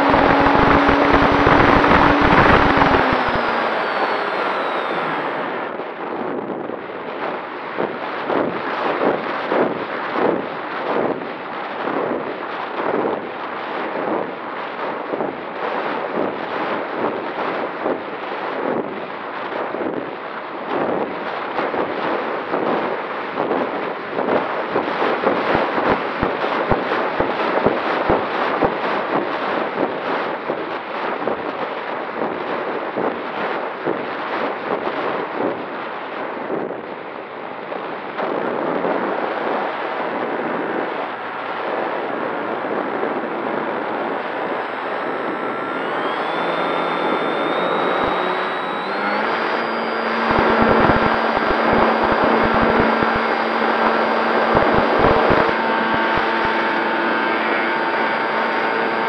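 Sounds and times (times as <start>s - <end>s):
electric motor whine: 0.0s - 6.0s, 38.2s - 59.0s
wind buffeting microphone: 0.0s - 6.8s.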